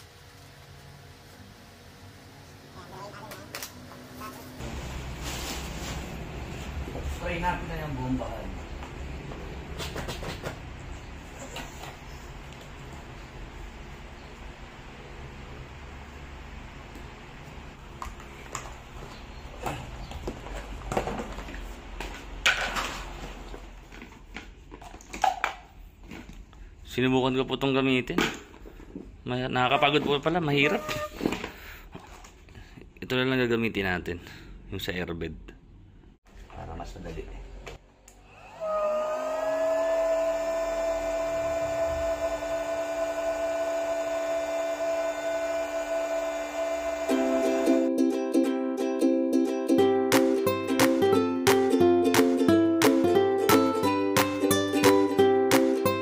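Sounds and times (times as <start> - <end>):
plastic rustling: 4.6 - 6.8
electric air pump motor whine: 38.3 - 47.9.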